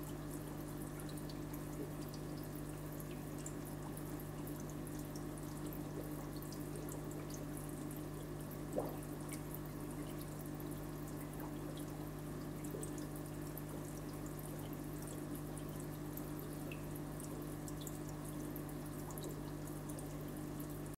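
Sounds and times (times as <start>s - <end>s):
aquarium filter motor hum: 0.0s - 20.9s
water trickling and dripping: 0.0s - 20.9s.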